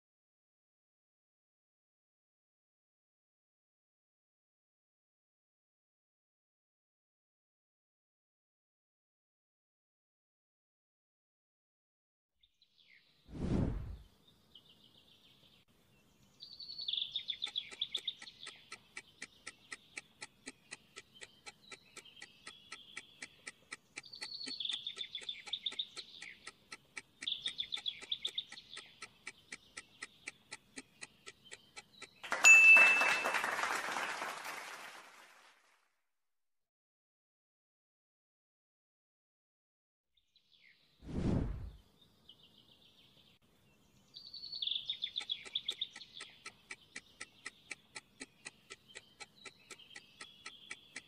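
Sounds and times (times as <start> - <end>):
birds chirping: 13.9 - 34.3, 41.5 - 51.0
countdown timer ticking: 17.2 - 33.0, 45.0 - 51.0.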